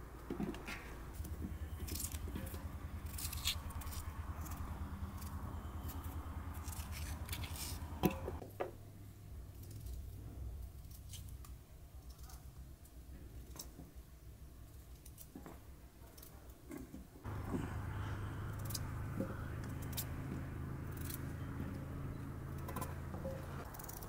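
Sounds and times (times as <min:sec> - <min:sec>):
low steady hum: 0:00.0 - 0:13.4, 0:17.2 - 0:24.0
knife scraping potato skin: 0:03.0 - 0:08.0.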